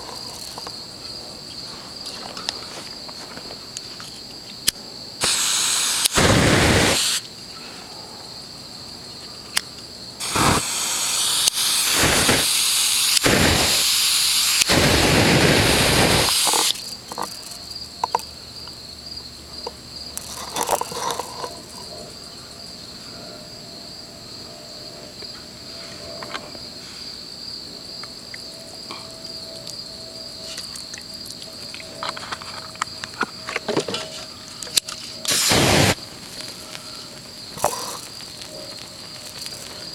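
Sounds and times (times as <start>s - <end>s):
insects trilling: 0.0s - 39.9s
loud rushing hiss: 5.2s - 7.3s, 10.2s - 16.9s, 35.2s - 39.9s
small ticks: 16.3s - 18.8s, 36.0s - 39.9s.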